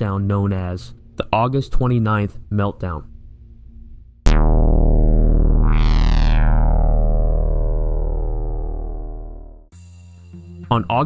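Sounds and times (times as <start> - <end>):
synthesizer hit with deep bass: 4.2 - 9.7
rising synth sweep: 4.3 - 9.7.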